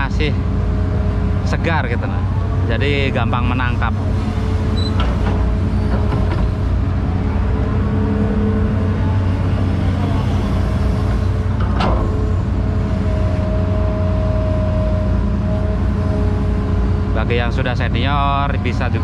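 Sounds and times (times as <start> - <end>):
excavator diesel engine running: 0.0 - 19.0
hydraulic whine: 0.5 - 17.5.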